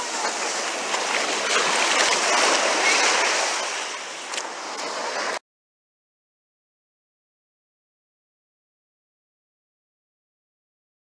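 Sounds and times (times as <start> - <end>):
ocean surf breaking on sand: 0.0 - 5.4.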